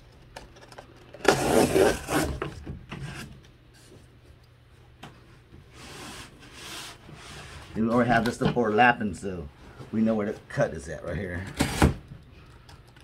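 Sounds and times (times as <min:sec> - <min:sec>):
cardboard scraping and rubbing: 0:01.2 - 0:03.3.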